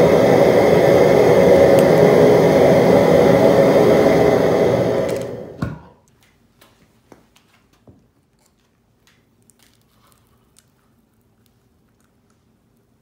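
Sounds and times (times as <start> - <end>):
gas burner roaring: 0.0 - 6.0
flame going out pop: 1.2 - 2.5.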